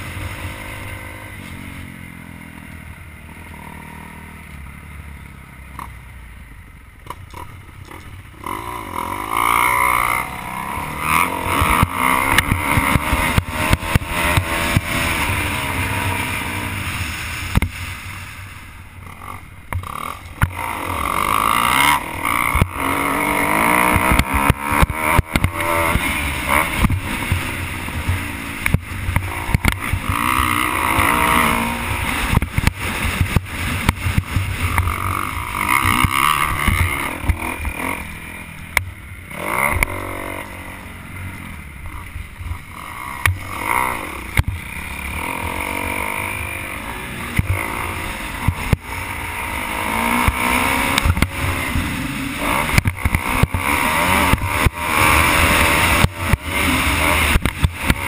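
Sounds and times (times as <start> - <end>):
dirt bike engine revving: 0.0 - 5.9, 7.3 - 58.0
knocks from rough track: 17.1 - 18.0, 23.8 - 30.2, 50.0 - 51.9, 52.6 - 56.5.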